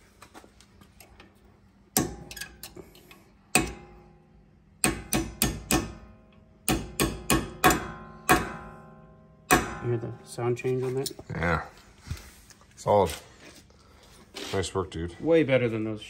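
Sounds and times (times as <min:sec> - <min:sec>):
hammer striking metal pin: 0:01.9 - 0:04.2, 0:04.8 - 0:10.2.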